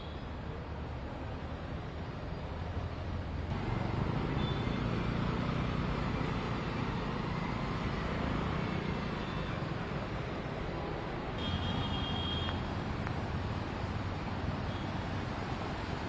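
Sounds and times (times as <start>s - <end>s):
vehicle engines running: 1.3s - 11.4s.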